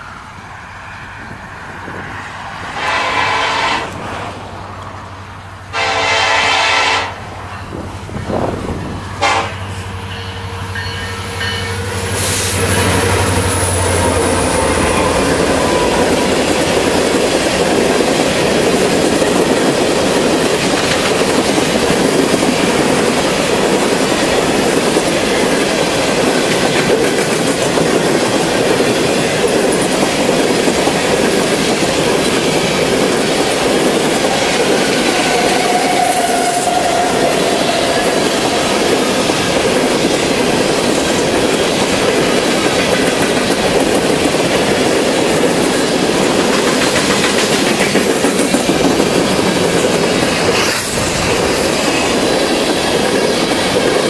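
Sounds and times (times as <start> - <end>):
rail cars rumbling and clacking: 0.0 - 54.0
locomotive air horn blasts: 2.7 - 4.0, 5.7 - 7.3, 9.2 - 10.6, 35.1 - 38.9.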